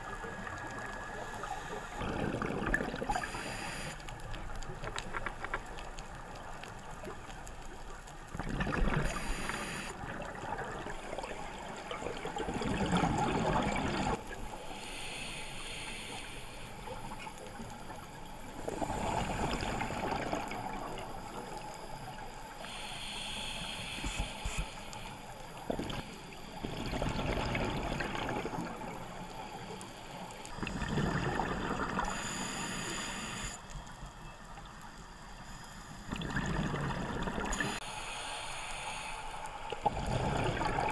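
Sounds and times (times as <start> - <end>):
underwater exhaled bubbles: 0.0 - 14.9, 16.7 - 23.2, 23.9 - 33.6, 34.6 - 37.8, 39.6 - 40.9
regulator inhalation hiss: 3.0 - 4.1, 9.0 - 10.0, 14.5 - 17.1, 22.4 - 26.6, 32.0 - 33.6, 37.5 - 40.3.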